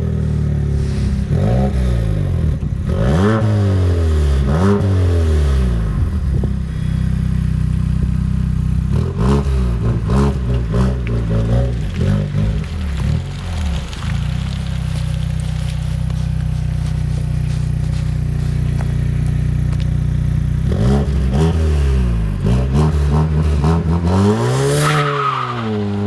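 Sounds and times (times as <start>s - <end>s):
car engine revving: 0.0s - 26.0s
car engine idling: 5.7s - 21.4s.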